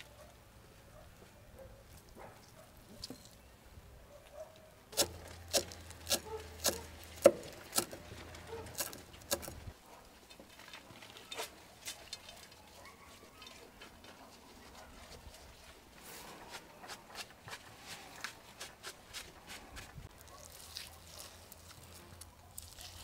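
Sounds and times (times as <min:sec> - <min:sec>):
knife chopping on wooden board: 0:05.0 - 0:08.0, 0:08.6 - 0:09.6.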